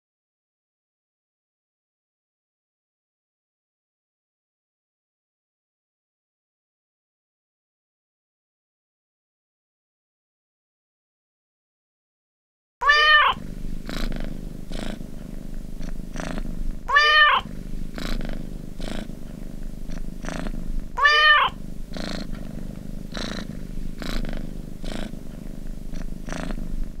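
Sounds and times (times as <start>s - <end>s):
cat meowing: 12.8s - 13.4s, 16.9s - 17.5s, 21.0s - 21.6s
cat purring: 12.8s - 27.0s.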